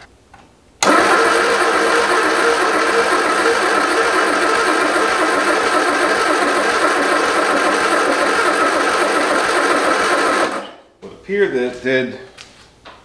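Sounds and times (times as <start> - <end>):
engine cranking by starter: 0.8 - 10.8.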